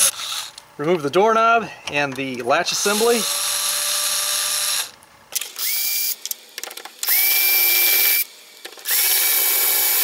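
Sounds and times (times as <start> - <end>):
screws and bit clicking: 2.3 - 10.0
electric screwdriver whine: 2.8 - 10.0.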